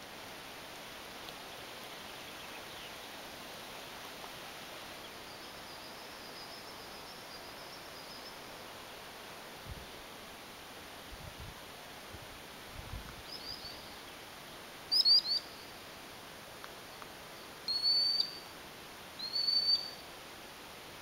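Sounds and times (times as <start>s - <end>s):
wind and rustling: 0.0s - 21.0s
faint high bird call: 14.9s - 15.7s, 17.7s - 18.5s, 19.2s - 20.0s.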